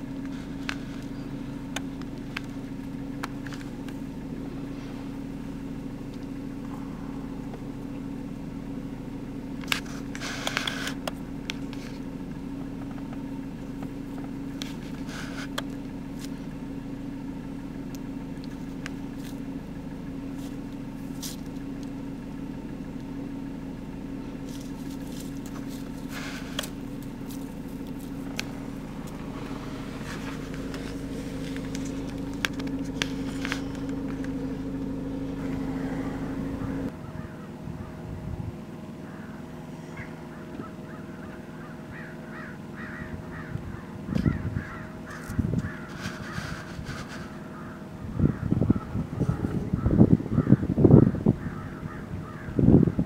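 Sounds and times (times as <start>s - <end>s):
car engine idling: 0.0s - 53.0s.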